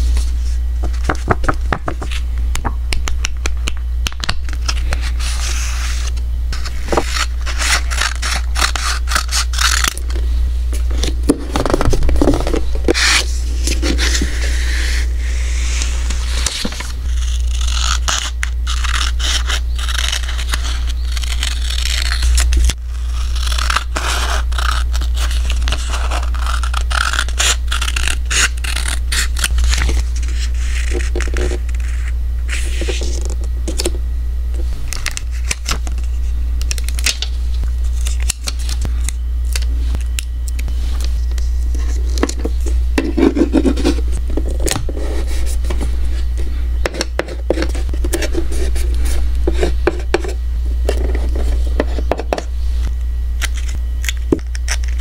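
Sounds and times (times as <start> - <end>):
paper sheets being handled: 0.0 - 2.8
low hum: 0.0 - 55.0
scissors cutting paper: 6.9 - 10.2, 15.8 - 33.9, 53.4 - 55.0.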